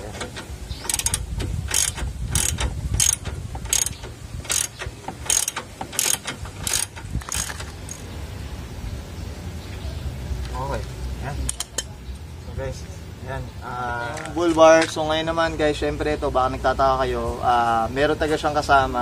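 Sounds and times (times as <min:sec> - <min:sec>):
ratchet wrench clicking: 0:00.2 - 0:08.1.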